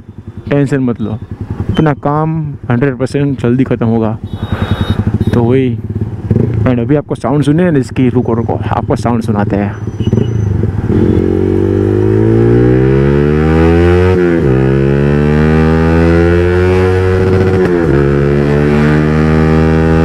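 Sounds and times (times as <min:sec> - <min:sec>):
motorcycle engine accelerating hard: 0:00.0 - 0:02.0, 0:04.3 - 0:06.9, 0:09.4 - 0:20.0.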